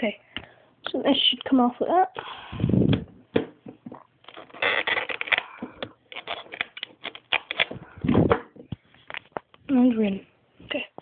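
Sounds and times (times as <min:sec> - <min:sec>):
packaging scraping and crinkling: 0:04.3 - 0:07.8.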